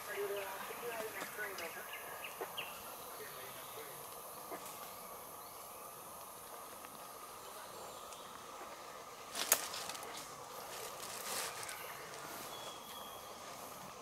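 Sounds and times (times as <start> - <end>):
rainforest insects chorus: 0.0 - 14.0
brief crackle: 9.3 - 12.2.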